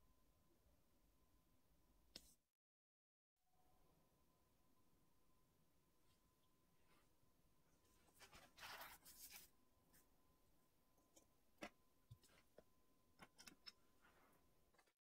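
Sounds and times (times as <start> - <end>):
paper towel rustling: 7.9 - 9.5.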